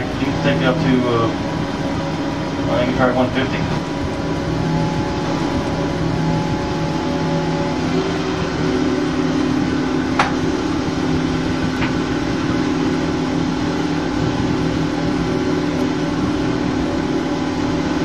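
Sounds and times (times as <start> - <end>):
boat engine running: 0.0 - 18.0
water and hull noise: 0.0 - 18.0.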